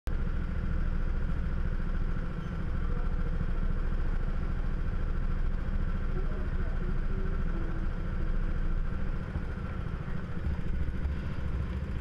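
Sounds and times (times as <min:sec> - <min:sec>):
go-kart engine idling: 0:00.1 - 0:12.0
thin steady whine: 0:00.1 - 0:12.0.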